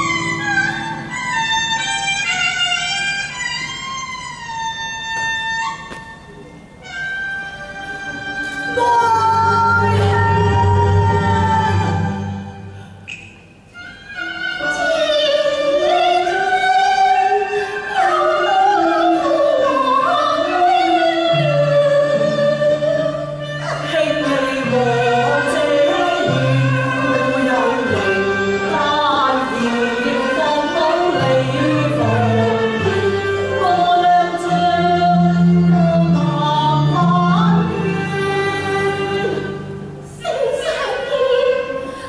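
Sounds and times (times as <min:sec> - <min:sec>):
person singing opera: 0:08.2 - 0:13.0, 0:13.9 - 0:42.0.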